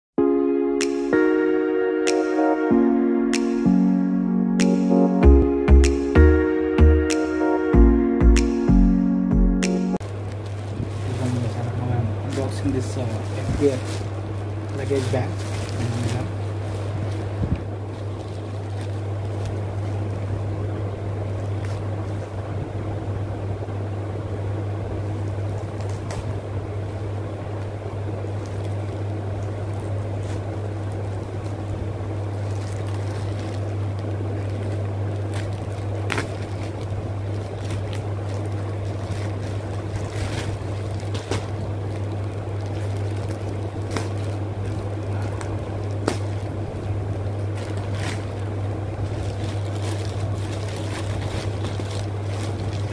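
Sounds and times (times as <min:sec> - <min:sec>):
steady low hum with air noise: 0:00.2 - 0:52.9
plastic pouch crinkling: 0:10.0 - 0:20.4, 0:28.4 - 0:52.9.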